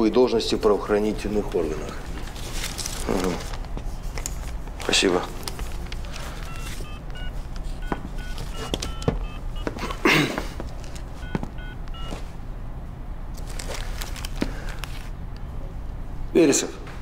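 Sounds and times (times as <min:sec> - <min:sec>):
phone keypad two-tone beeps: 0:06.5 - 0:09.4, 0:11.6 - 0:12.2.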